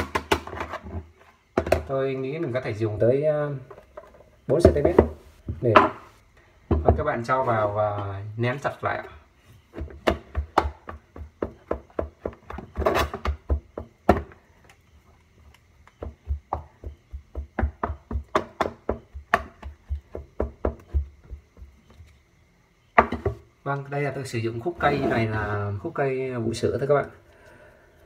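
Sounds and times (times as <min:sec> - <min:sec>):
stick tamping substrate: 0:15.4 - 0:22.1.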